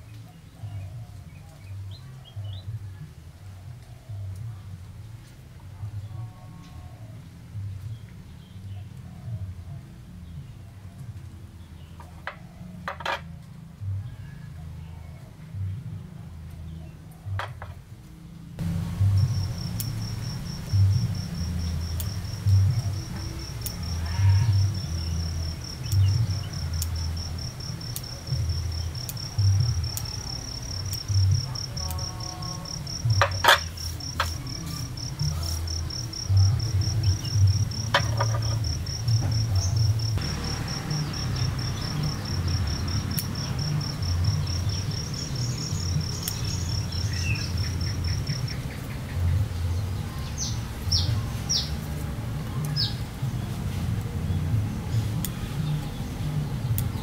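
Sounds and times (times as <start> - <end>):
low fluctuating rumble: 18.6 - 31.8
insect trilling: 18.9 - 48.6
pruning scissors snipping: 23.2 - 23.9, 25.8 - 32.1, 40.2 - 44.6
bird chirping: 31.9 - 51.8.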